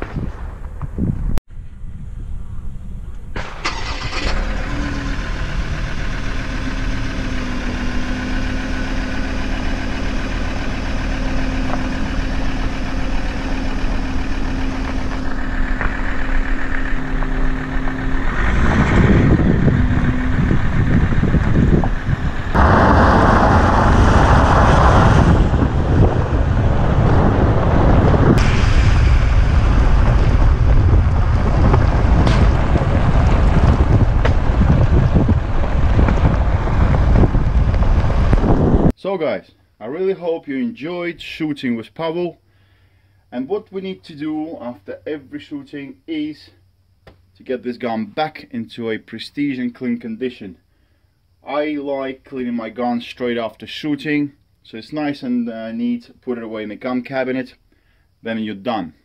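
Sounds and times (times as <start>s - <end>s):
wind buffeting microphone: 0.0s - 3.4s, 18.0s - 38.9s
tyres on gravel: 3.4s - 27.0s, 28.0s - 38.8s
pickup truck engine running: 3.8s - 38.9s.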